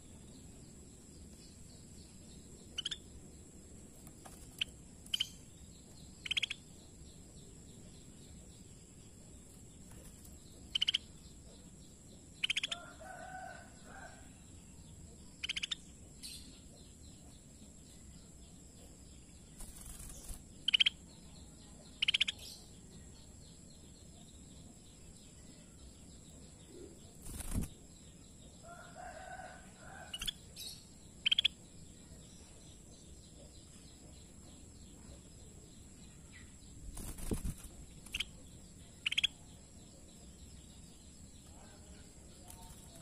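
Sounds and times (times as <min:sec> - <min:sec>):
wing flap rustles: 0:36.9 - 0:37.8.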